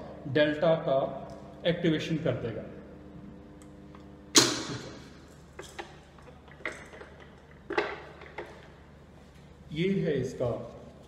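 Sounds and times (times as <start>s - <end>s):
contactor hum: 0.0s - 11.0s
loud contactor clunk: 4.3s - 5.9s.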